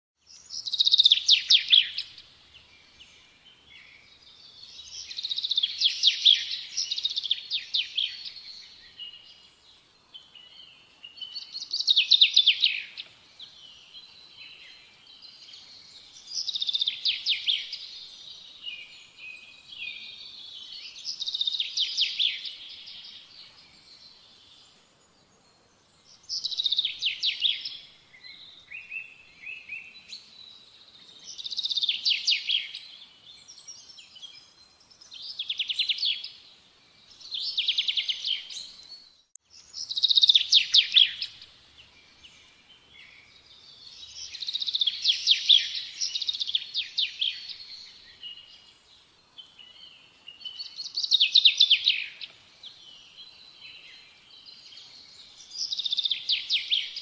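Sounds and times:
songbird trilling: 0:39.6 - 0:41.4.

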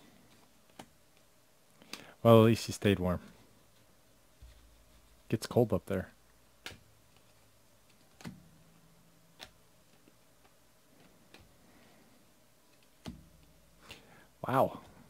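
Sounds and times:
cards flipping clicks: 0:06.6 - 0:08.5, 0:09.3 - 0:11.5.

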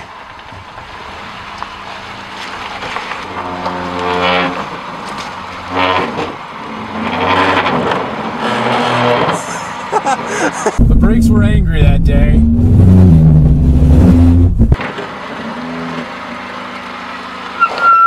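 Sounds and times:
low engine running: 0:10.4 - 0:14.8
car brakes groaning: 0:10.8 - 0:14.8.

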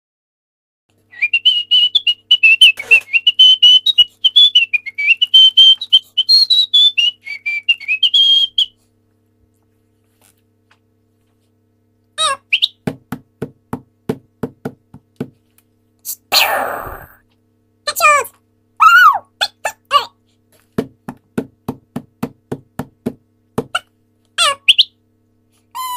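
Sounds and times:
wavering whistled tune: 0:01.1 - 0:08.8, 0:12.5 - 0:12.8
squeaky sped-up voice: 0:12.2 - 0:12.6, 0:16.1 - 0:17.2, 0:17.9 - 0:20.2, 0:23.8 - 0:24.8.

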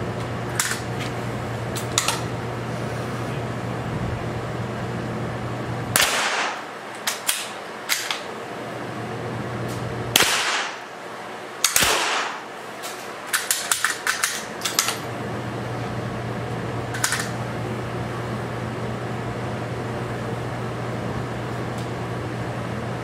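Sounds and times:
ventilation hum: 0:00.0 - 0:23.0
rifle shots: 0:06.0 - 0:08.1, 0:10.1 - 0:10.9, 0:11.6 - 0:12.6.

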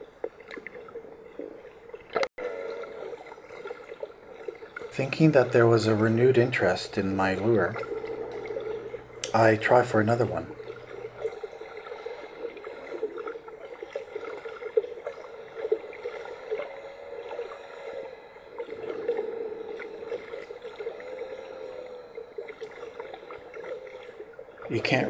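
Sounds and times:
faint wavering tone: 0:00.8 - 0:25.0
muffled underwater noise: 0:02.4 - 0:25.0
small clicks and crackles: 0:10.4 - 0:24.8.

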